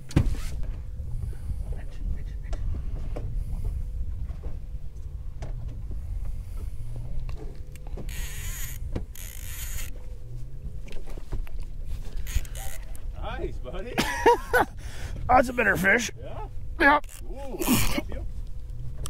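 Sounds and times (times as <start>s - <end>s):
low rumble: 0.0s - 19.0s
fishing reel clicking: 7.7s - 10.0s, 12.2s - 13.0s, 17.0s - 17.3s.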